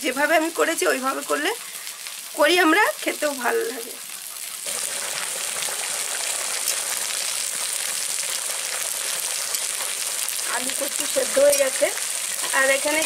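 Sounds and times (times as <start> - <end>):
water bubbling in a pan: 0.8 - 10.6.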